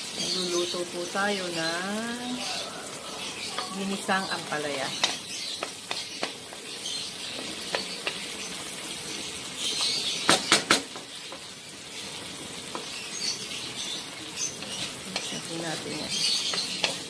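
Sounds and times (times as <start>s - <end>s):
vegetables sizzling in a wok: 0.0s - 17.0s
sharp knocks: 10.3s - 11.0s
wooden spoon stirring: 14.4s - 17.0s.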